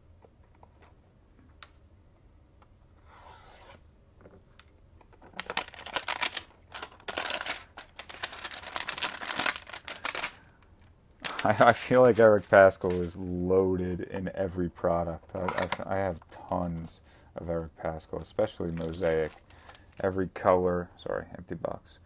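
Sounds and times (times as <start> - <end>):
plastic wrapper crinkling: 5.2 - 10.6, 11.2 - 13.2, 18.1 - 20.2.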